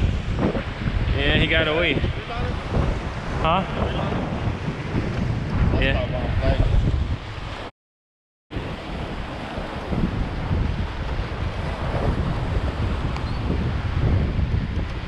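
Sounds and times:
surf washing against rocks: 0.0s - 7.7s, 8.6s - 15.0s
wind buffeting microphone: 0.0s - 7.7s, 8.5s - 15.0s.

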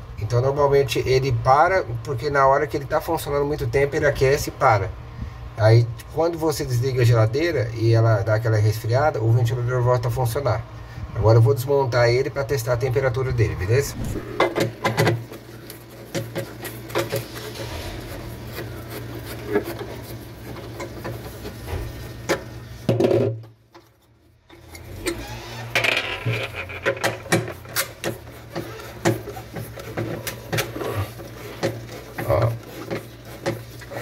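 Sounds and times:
steady low hum: 0.0s - 20.6s.

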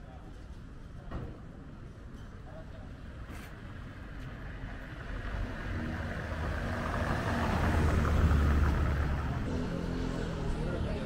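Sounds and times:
vehicle passing by: 4.4s - 11.0s.

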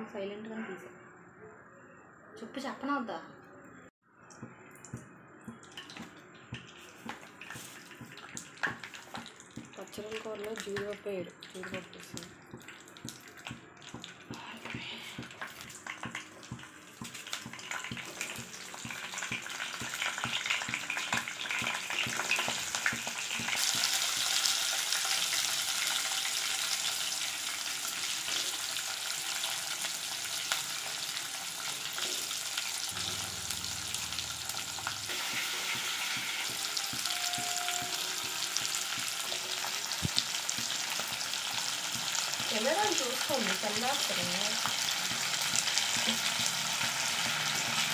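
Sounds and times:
seeds crackling in hot oil: 4.8s - 47.9s
onions sizzling in pan: 5.8s - 47.9s.

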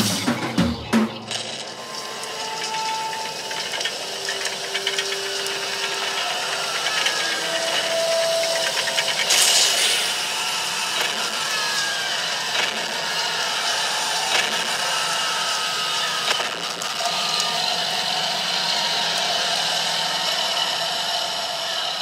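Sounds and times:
drum kit rock beat: 0.0s - 1.4s
crash cymbal hit: 9.3s - 10.4s.

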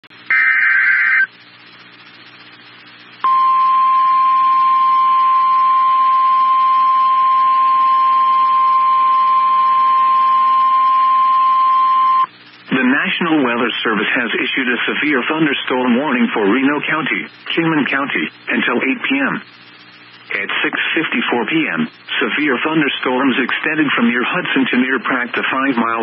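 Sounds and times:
screeching data burst: 0.3s - 1.4s.

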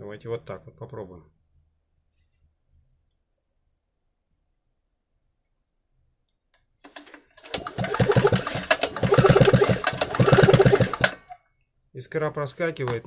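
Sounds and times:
generator recoil starter cranking: 6.9s - 11.4s.

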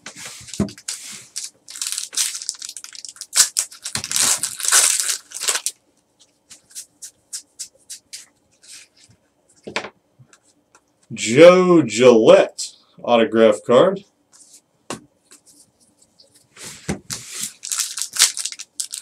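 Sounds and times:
foil wrapper crinkling and tearing: 0.7s - 5.8s, 17.4s - 19.0s.

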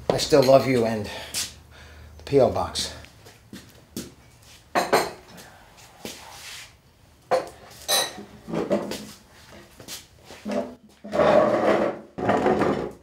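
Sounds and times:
cups clinking on a table: 4.7s - 5.2s, 7.3s - 8.9s.

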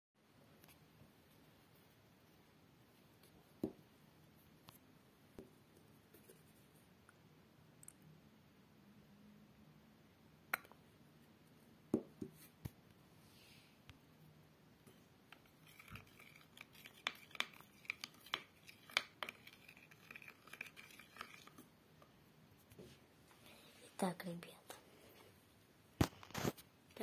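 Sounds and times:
wooden stick scraping paste: 15.3s - 21.7s.

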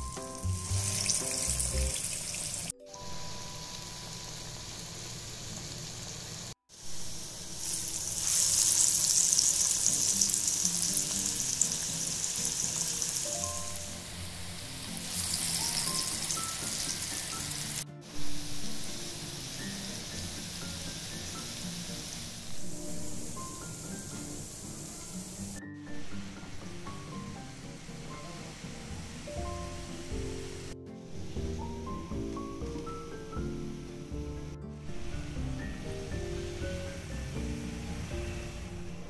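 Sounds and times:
falafel deep-frying in hot oil: 0.0s - 22.6s.

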